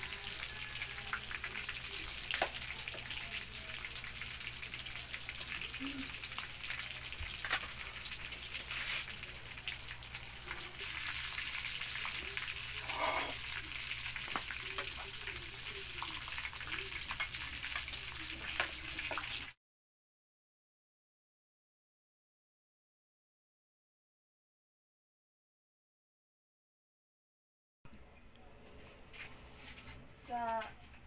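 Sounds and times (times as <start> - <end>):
deep-frying sizzle: 0.0 - 19.6
oil popping and crackling: 0.0 - 19.6.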